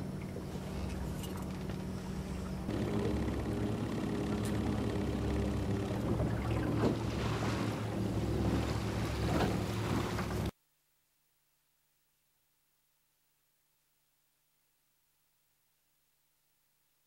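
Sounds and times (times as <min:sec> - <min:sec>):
steady low hum: 0:00.0 - 0:10.5
water splashing around boat: 0:00.0 - 0:10.5
wind: 0:00.0 - 0:10.7.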